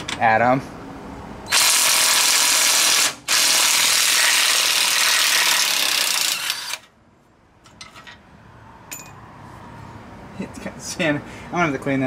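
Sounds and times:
cordless electric ratchet spinning: 0:01.5 - 0:06.9.

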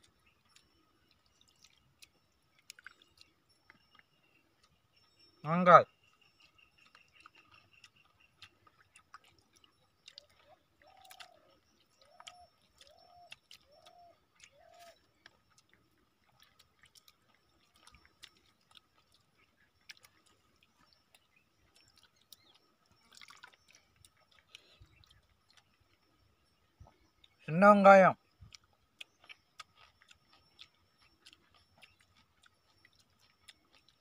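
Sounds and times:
chewing: 0:00.0 - 0:27.5, 0:28.2 - 0:34.0
wet clicks and drips of eating: 0:00.0 - 0:34.0.

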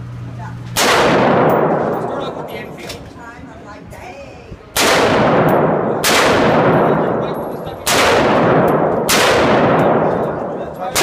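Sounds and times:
gunshot echo: 0:00.8 - 0:02.8, 0:04.8 - 0:11.0
rifle shots: 0:00.8 - 0:03.0, 0:04.8 - 0:11.0.

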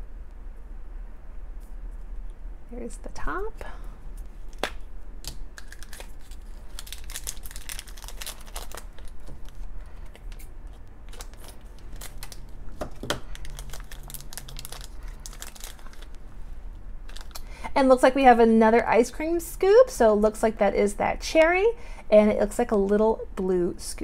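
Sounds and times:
plastic wrapper crinkling: 0:04.2 - 0:16.2, 0:17.0 - 0:17.5.

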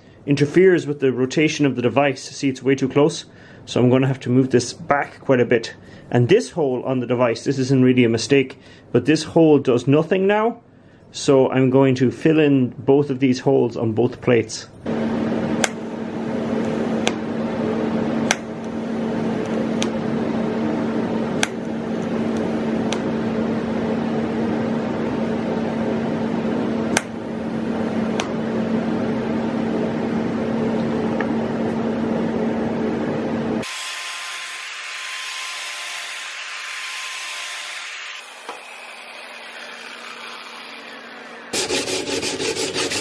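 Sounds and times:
power tool humming: 0:14.9 - 0:24.6, 0:26.3 - 0:28.9, 0:33.5 - 0:43.0
abrasive rubbing on metal: 0:41.6 - 0:43.0.

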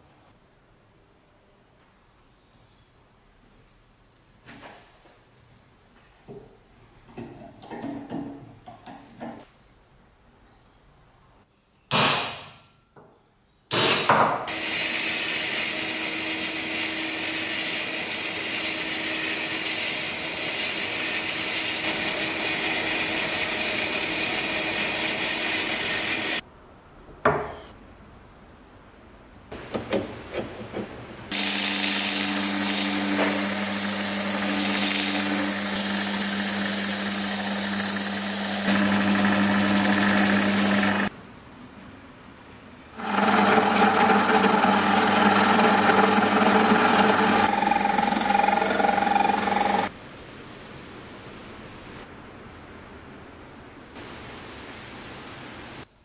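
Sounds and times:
machine hum: 0:31.3 - 0:41.1, 0:42.9 - 0:49.9
machine running loudly: 0:31.3 - 0:41.1, 0:43.0 - 0:49.9.

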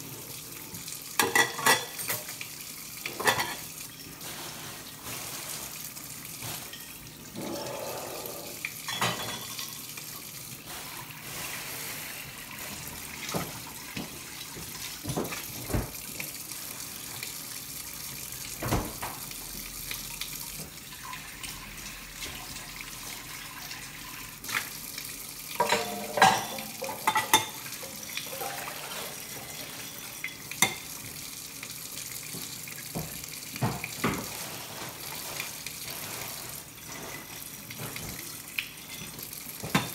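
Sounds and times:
plates clinking and knocking: 0:08.9 - 0:09.6, 0:25.6 - 0:27.6
tap running into sink: 0:13.2 - 0:16.3, 0:18.5 - 0:19.3, 0:32.3 - 0:34.4.

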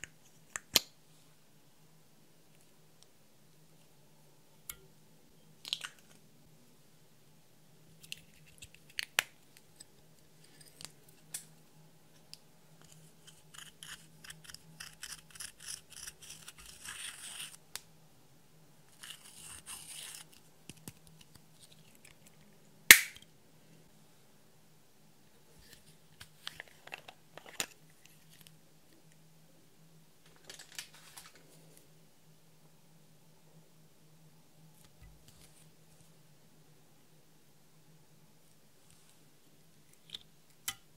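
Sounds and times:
tool scraping powder eyeshadow: 0:12.9 - 0:17.6.

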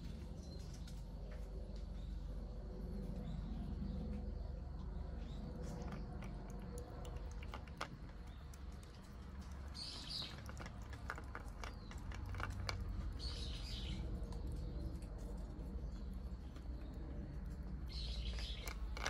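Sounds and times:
bird chirping: 0:03.2 - 0:19.0
cat chewing and lapping: 0:05.5 - 0:19.0.

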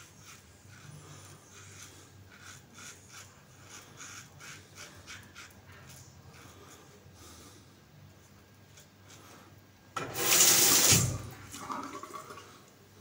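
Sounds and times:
razor scraping stubble: 0:00.0 - 0:07.0.

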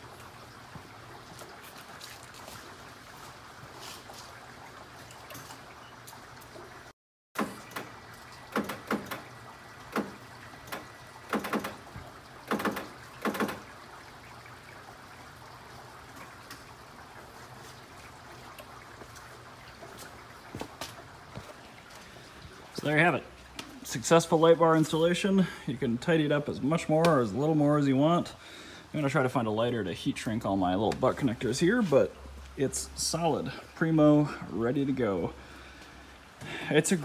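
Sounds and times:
sharp knocks and clunks: 0:07.4 - 0:13.7.

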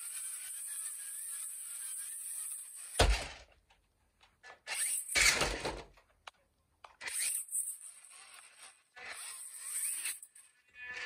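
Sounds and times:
toy truck motor whine: 0:00.0 - 0:03.0, 0:07.0 - 0:11.0
toy truck thudding on carpet: 0:03.0 - 0:03.5.

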